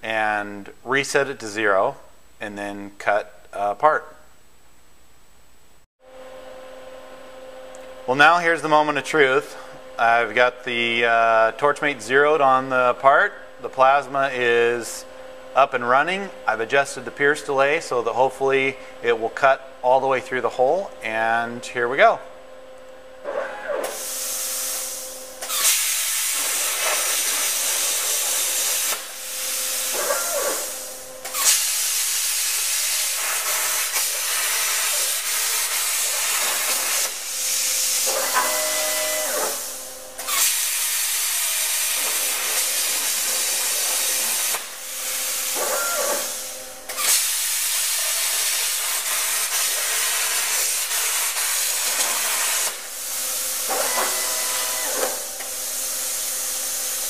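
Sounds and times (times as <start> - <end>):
plasma arc hissing: 23.9 - 57.0
wavering machine whine: 42.9 - 47.0, 53.7 - 55.5.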